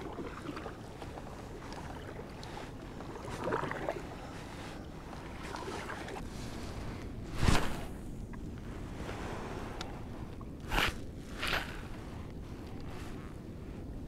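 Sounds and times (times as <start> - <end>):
kayak paddle splashes: 0.0 - 4.3.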